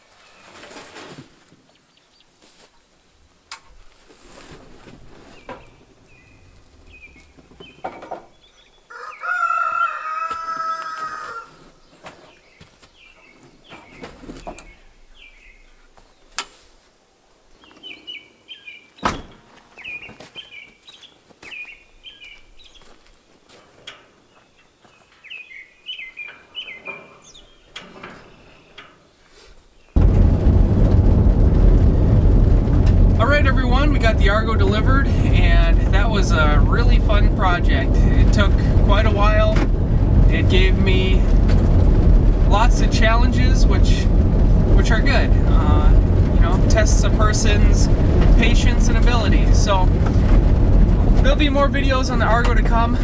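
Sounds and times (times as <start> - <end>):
small birds chirping: 5.3 - 8.9, 11.8 - 16.4, 17.6 - 23.0, 24.2 - 30.0
road noise inside moving car: 30.0 - 53.0.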